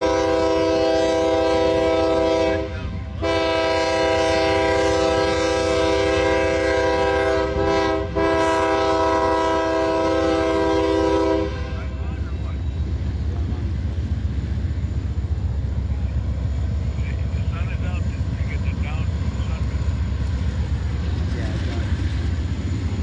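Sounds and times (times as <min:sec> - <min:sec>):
locomotive air horn blasts: 0:00.0 - 0:12.0.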